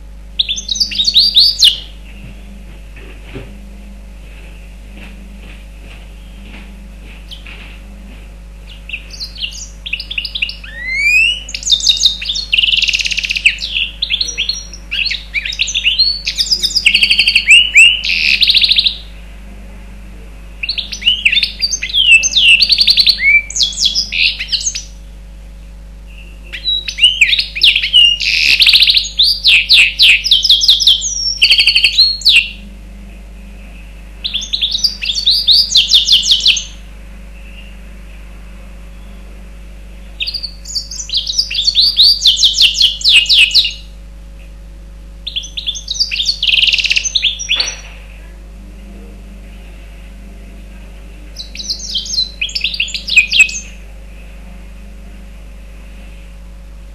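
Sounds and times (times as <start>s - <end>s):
bird twittering song: 0.0s - 3.4s, 7.2s - 8.0s, 8.6s - 19.3s, 20.5s - 32.7s, 33.4s - 38.2s, 38.9s - 44.6s, 45.2s - 48.4s, 51.1s - 55.2s.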